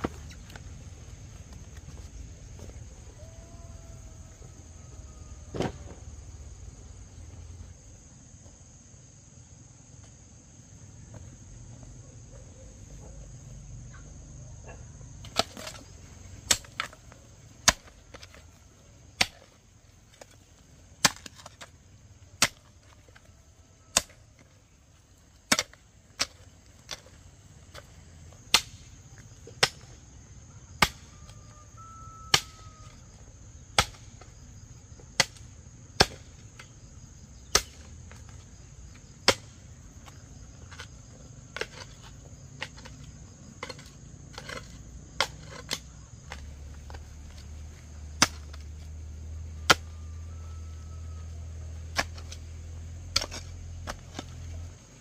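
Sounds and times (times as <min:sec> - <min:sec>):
high insect drone: 0:00.0 - 0:55.0
hoe chopping into stony soil: 0:15.2 - 0:18.4, 0:19.2 - 0:19.5, 0:21.0 - 0:21.7, 0:22.4 - 0:23.2, 0:23.9 - 0:24.5, 0:25.4 - 0:28.9, 0:30.7 - 0:31.1, 0:33.6 - 0:34.3, 0:35.1 - 0:36.8, 0:37.4 - 0:47.5, 0:48.2 - 0:48.9, 0:49.6 - 0:49.9, 0:51.9 - 0:52.4, 0:53.1 - 0:54.6.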